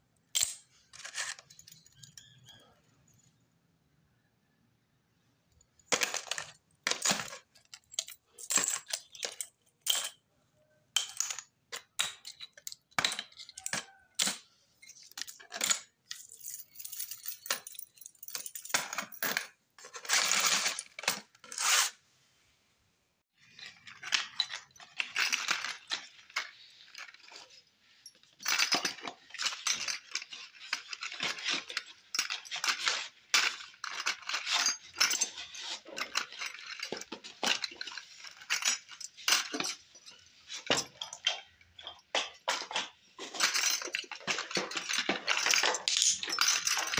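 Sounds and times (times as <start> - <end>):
metal watches clinking: 0.3 - 3.4, 5.7 - 19.4, 23.7 - 46.9
bangles jingling: 16.1 - 19.2.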